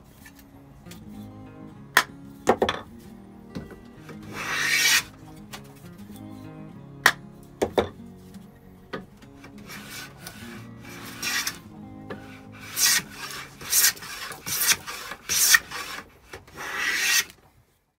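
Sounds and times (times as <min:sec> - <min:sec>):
faint background music: 0:00.0 - 0:16.0
hand plane shaving wood: 0:04.0 - 0:05.6, 0:09.5 - 0:17.4.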